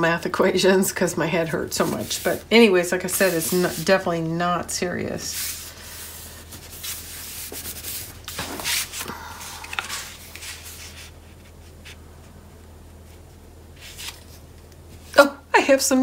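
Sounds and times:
hands rubbing cardstock on mat: 5.3 - 9.0.

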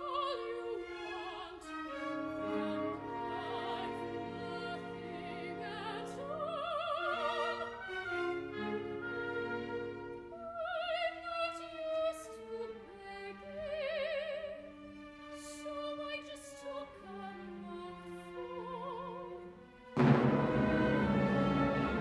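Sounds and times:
soprano singing opera: 0.0 - 19.7
orchestra playing: 0.4 - 10.5, 19.6 - 22.0.

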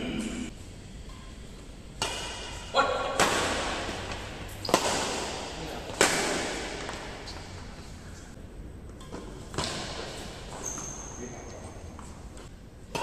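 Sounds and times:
racket hitting shuttlecock echoing: 1.9 - 7.5.

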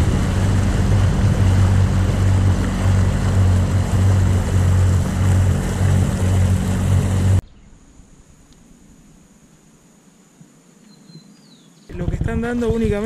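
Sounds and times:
motorboat engine running: 0.0 - 7.4
water and wind rushing: 0.0 - 7.4.

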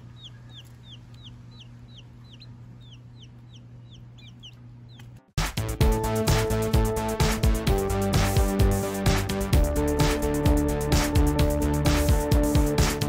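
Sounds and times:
baby chicks peeping: 0.0 - 5.2
low steady hum: 0.0 - 5.3
upbeat electronic music: 5.4 - 13.0.

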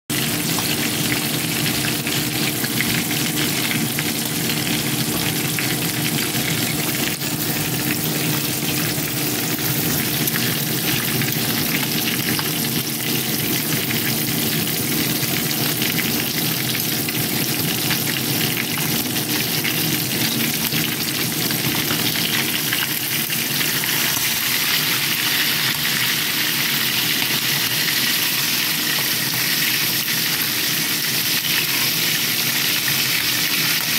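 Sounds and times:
fish sizzling in hot oil: 0.1 - 33.9.

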